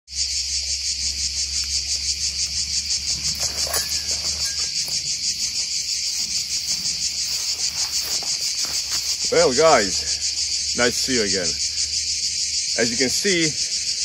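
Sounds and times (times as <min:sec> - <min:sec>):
pulsing insect song: 0:00.1 - 0:14.0
footsteps through dry undergrowth: 0:00.2 - 0:10.6.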